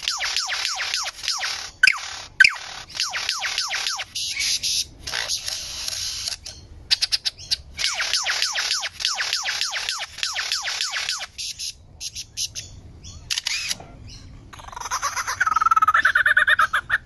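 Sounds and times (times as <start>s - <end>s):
bird whistled notes: 0.0s - 4.9s, 6.2s - 12.7s
loud sharp bird notes: 0.0s - 14.8s
harsh rasping bird call: 0.0s - 17.0s
bird clicks: 13.3s - 13.8s.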